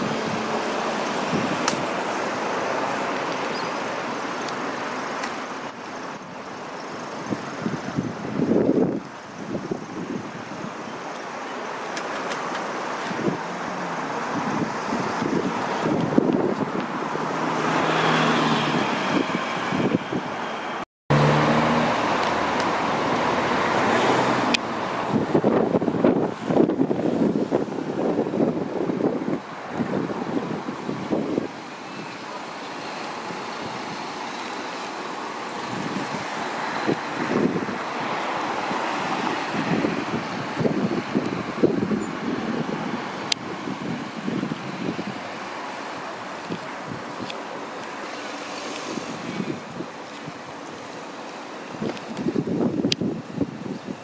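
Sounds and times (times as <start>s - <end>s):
cars driving past: 12.4s - 51.6s.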